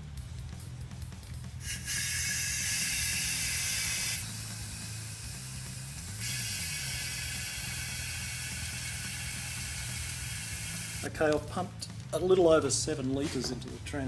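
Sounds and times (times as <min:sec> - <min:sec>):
compressed air hissing: 0:01.6 - 0:11.1.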